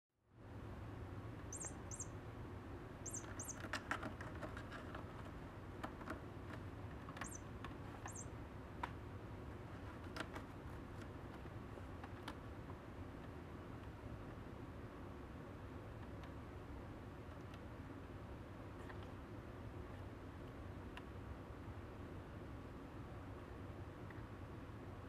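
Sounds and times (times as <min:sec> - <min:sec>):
steady low hum: 0:00.2 - 0:25.0
very high chirps: 0:01.5 - 0:02.2, 0:03.0 - 0:03.6, 0:07.2 - 0:07.5, 0:08.1 - 0:08.3
kitten claws scratching post: 0:03.1 - 0:08.3, 0:09.5 - 0:12.6.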